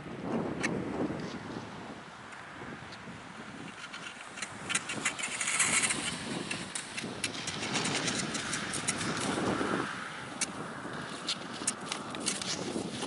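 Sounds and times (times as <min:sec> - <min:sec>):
skis sliding over snow: 0:03.5 - 0:13.0
sharp clicks and crunches: 0:03.6 - 0:09.6, 0:10.3 - 0:13.0.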